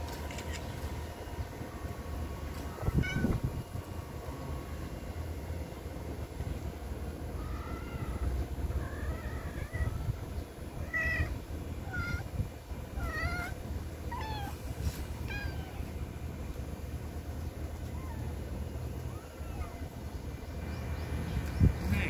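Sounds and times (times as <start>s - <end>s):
steady low rumble: 0.0s - 22.0s
kittens mewing: 2.8s - 3.6s, 7.3s - 16.0s, 17.9s - 20.1s.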